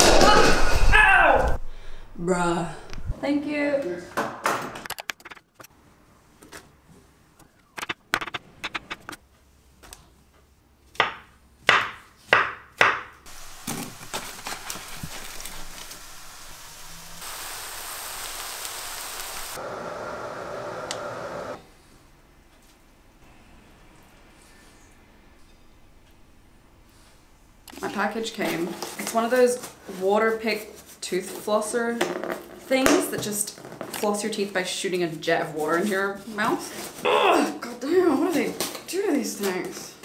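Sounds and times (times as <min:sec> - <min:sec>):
knife chopping on wooden board: 0:11.0 - 0:13.2
vegetables sizzling in a pan: 0:13.3 - 0:21.6.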